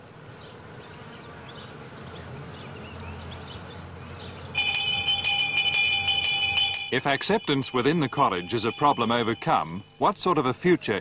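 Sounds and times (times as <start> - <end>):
jingling shimmer: 4.6 - 10.0
ringing bell-like tones: 4.6 - 10.6.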